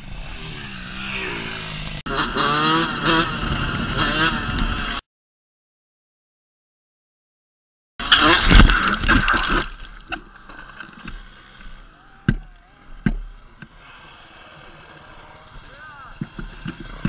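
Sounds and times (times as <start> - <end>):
faint outdoor background: 8.0 - 17.0
rush of rough noise and clatter: 13.0 - 17.0.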